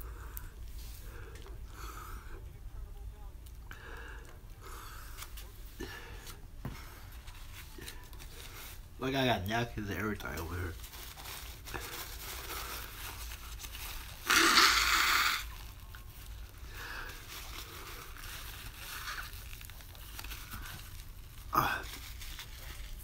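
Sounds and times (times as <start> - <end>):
person blowing nose: 14.1 - 15.7.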